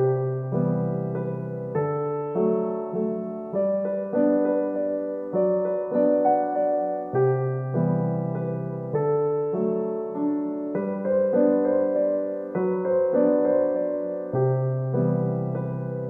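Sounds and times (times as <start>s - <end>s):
piano chords: 0.0s - 16.0s.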